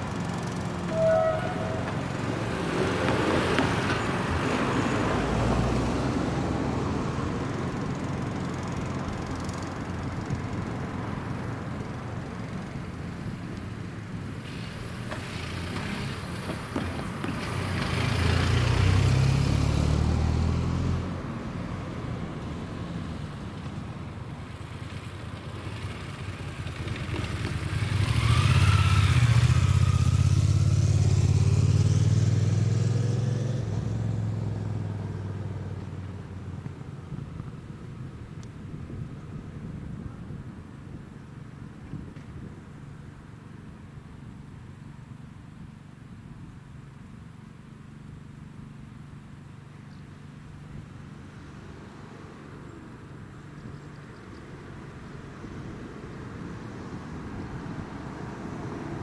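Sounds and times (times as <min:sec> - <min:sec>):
cars driving past: 0:00.0 - 0:39.4, 0:47.6 - 0:59.0
loud engine: 0:14.4 - 0:21.3, 0:27.0 - 0:35.4.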